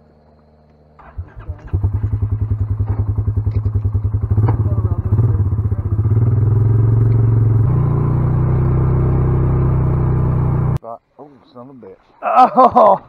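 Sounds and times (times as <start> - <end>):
atv engine revving: 1.0 - 10.8.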